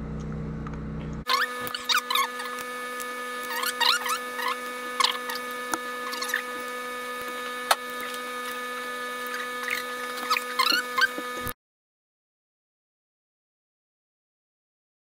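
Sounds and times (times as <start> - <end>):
short high squeaks: 1.3 - 6.8, 9.2 - 11.5.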